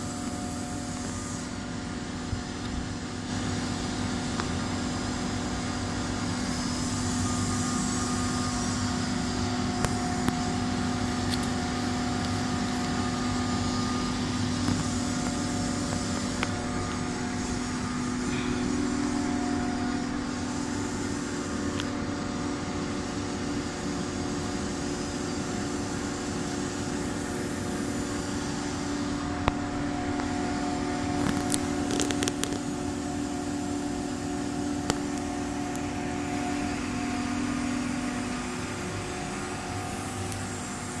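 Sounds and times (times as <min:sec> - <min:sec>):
machinery humming: 0:00.0 - 0:41.0.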